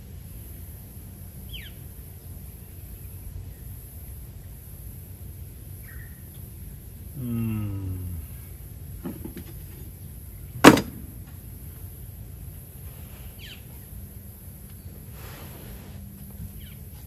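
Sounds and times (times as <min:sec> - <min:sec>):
low falling moan: 0:07.2 - 0:08.5
sharp knock: 0:10.6 - 0:11.2.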